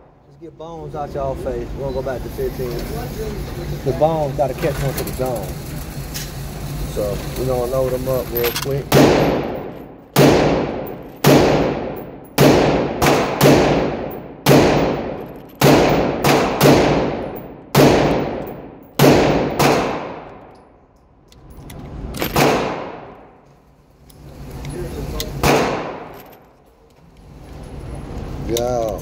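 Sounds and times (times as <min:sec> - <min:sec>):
echoing gunshots: 0:08.9 - 0:20.5, 0:22.2 - 0:23.4, 0:25.4 - 0:26.1.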